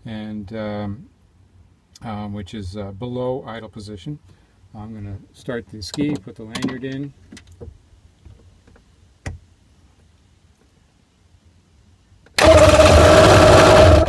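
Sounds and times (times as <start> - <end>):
watercraft engine starting and running: 12.4 - 14.0.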